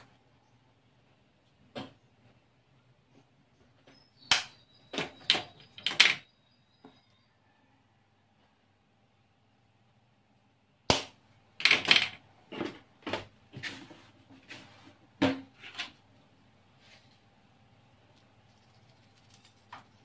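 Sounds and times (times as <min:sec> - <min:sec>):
pepper container shaking: 0:18.1 - 0:20.0.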